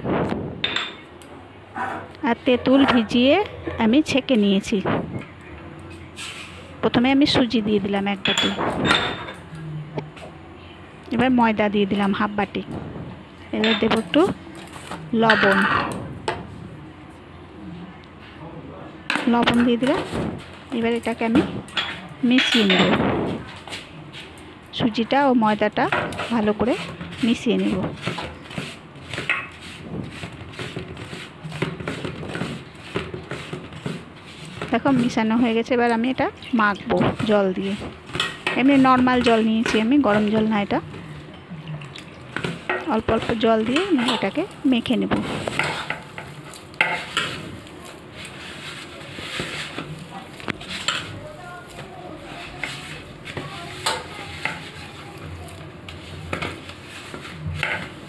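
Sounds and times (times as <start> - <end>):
fingers scraping dry mix in bowl: 25.8 - 40.9, 42.4 - 58.0.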